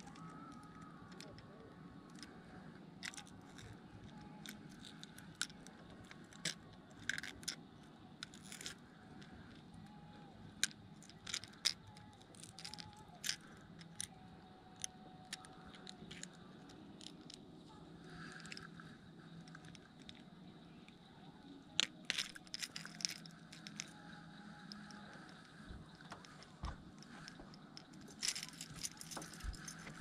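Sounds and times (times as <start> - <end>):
faint low hum: 0.0 - 30.0
fishing tackle clicks and scrapes: 0.0 - 30.0.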